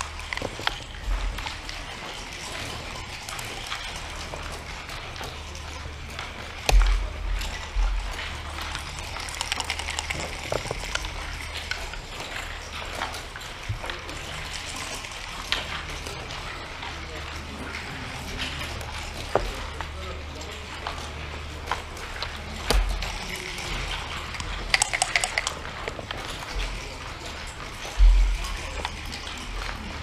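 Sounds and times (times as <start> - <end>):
game pieces clicking on wood: 0.0 - 1.5, 8.6 - 12.1, 22.2 - 26.8
low steady hum: 0.0 - 30.0.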